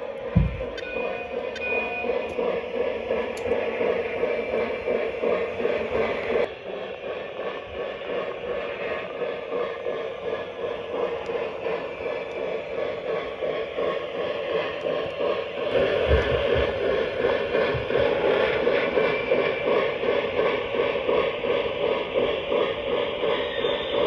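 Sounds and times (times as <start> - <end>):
model train wheel and rail noise: 0.0 - 24.0
low thump: 0.4 - 0.6.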